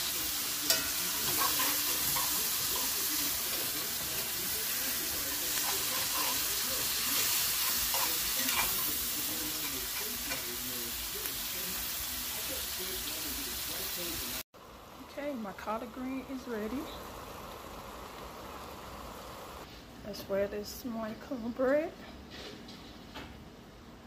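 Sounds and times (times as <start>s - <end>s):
mushrooms sizzling in butter: 0.0s - 19.7s
metal spoon scraping pan: 0.7s - 4.4s, 5.5s - 10.5s.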